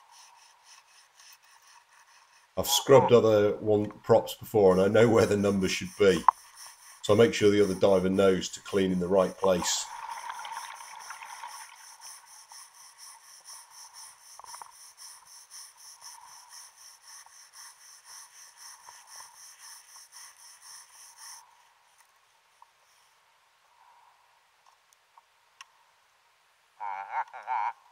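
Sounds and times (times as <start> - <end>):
wire brush scraping underwater: 4.5 - 21.4.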